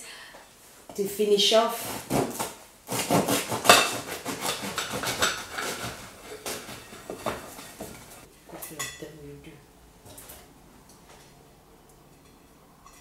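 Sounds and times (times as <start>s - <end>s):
knife sawing through crusty bread: 1.8s - 8.2s.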